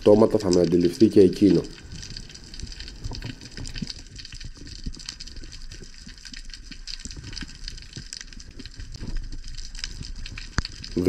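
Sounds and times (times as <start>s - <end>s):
crackle of small clicks: 0.0s - 11.0s
underwater rush of water: 0.0s - 11.0s
low underwater rumble: 1.4s - 7.9s.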